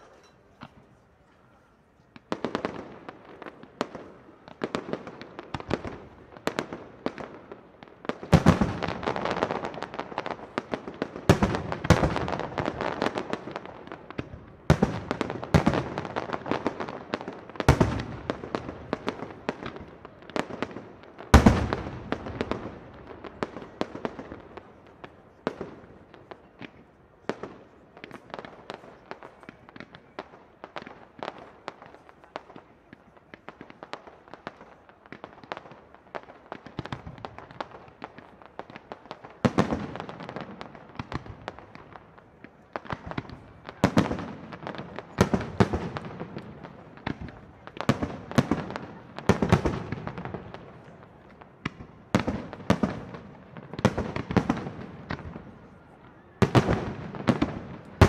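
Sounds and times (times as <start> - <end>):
fireworks reports and crackling: 0.0 - 58.0
heavy fireworks bangs: 2.1 - 32.6, 56.4 - 58.0.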